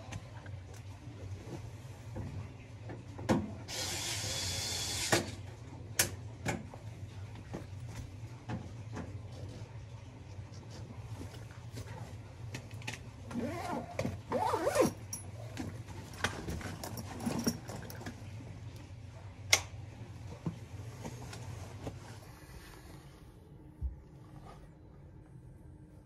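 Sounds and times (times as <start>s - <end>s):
steady low hum: 5.4s - 26.0s
backpack zipping and rustling: 13.4s - 15.0s.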